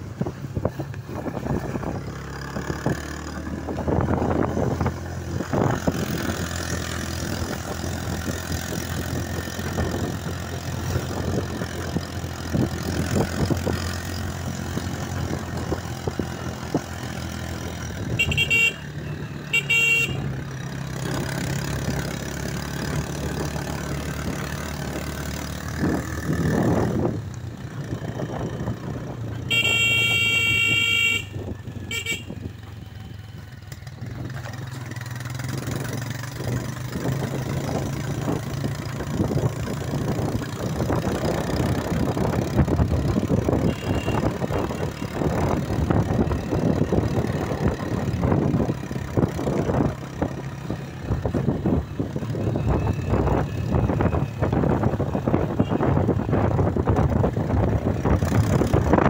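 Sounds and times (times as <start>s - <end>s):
motorcycle engine running: 0.0s - 59.0s
horn short beeps: 29.5s - 32.4s, 43.6s - 44.3s.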